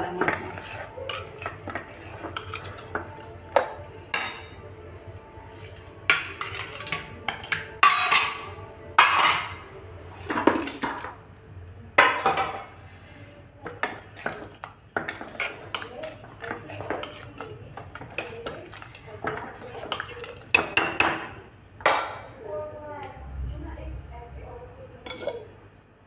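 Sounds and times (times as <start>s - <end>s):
ladle scraping and clanking in pot: 0.2s - 4.6s, 5.5s - 11.2s, 13.6s - 21.4s, 25.0s - 25.5s.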